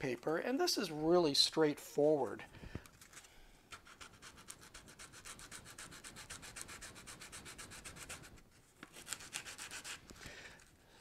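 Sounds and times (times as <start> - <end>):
sandpaper rubbing: 3.7 - 10.1.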